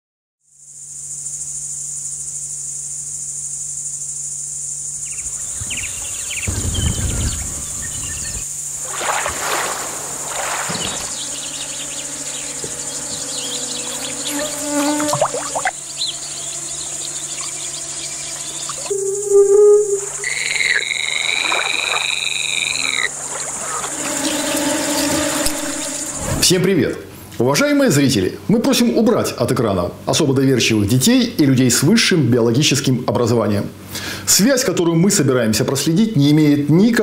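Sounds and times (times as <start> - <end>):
insects chirring: 0.4 - 28.2
loud splashing in water: 8.8 - 11.7, 14.4 - 15.8, 21.0 - 24.1.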